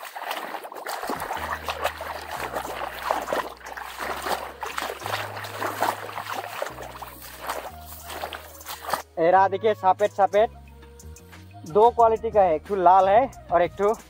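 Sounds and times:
water trickling and splashing: 0.0 - 9.3.

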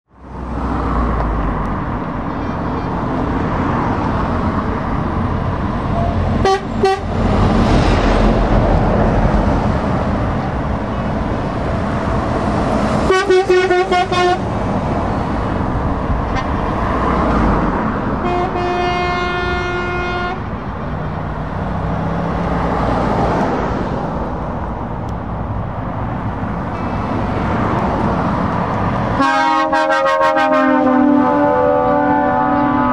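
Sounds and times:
trucks driving past: 0.1 - 32.9
truck horn blasts: 6.4 - 7.2, 13.0 - 14.5, 18.2 - 20.5, 29.2 - 32.9.

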